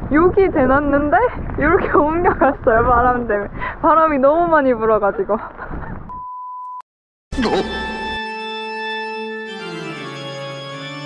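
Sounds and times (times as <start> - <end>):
organ-like music: 7.3 - 11.0.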